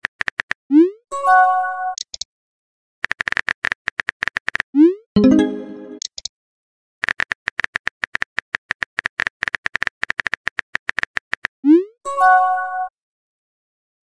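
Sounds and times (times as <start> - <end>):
phone keyboard typing clicks: 3.0 - 4.6, 7.0 - 11.5
incoming message chime: 5.2 - 6.0.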